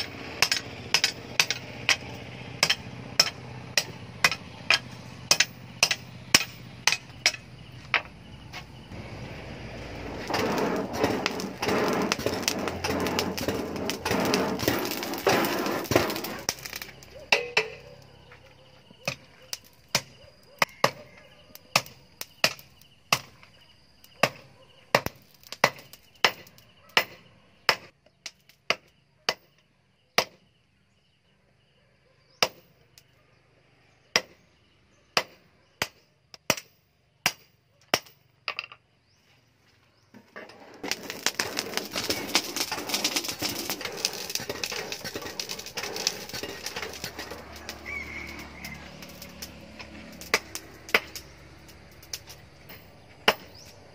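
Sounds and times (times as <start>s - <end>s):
forge fire crackling hiss: 8.7s - 17.3s, 40.4s - 52.8s.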